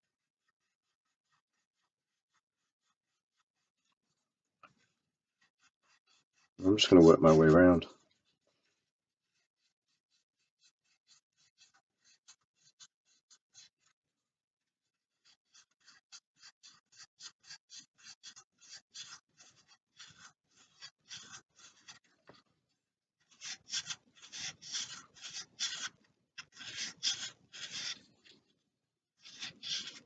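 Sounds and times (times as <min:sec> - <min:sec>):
sandpaper rubbing on balsa: 0:00.5 - 0:04.2, 0:09.2 - 0:14.0, 0:23.3 - 0:28.1, 0:29.2 - 0:30.0.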